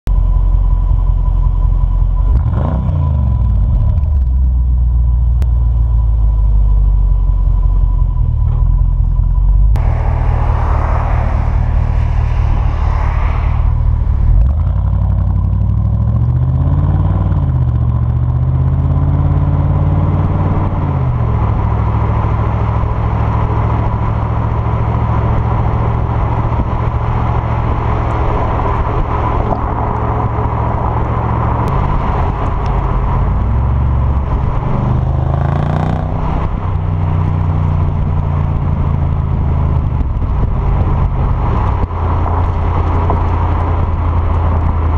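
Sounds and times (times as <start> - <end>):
wind and road noise: 0.1 - 44.9
car exhaust engine revving: 9.6 - 37.4.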